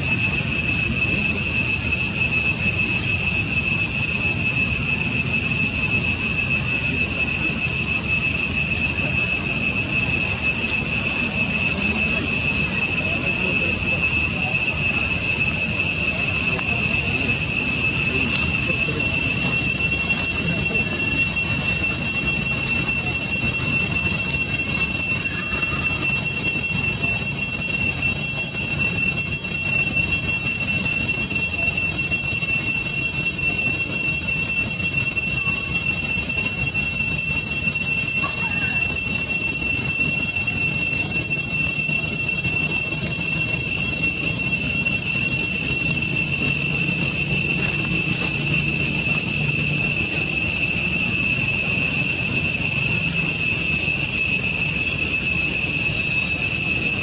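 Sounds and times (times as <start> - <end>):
cicadas droning: 0.0 - 57.0.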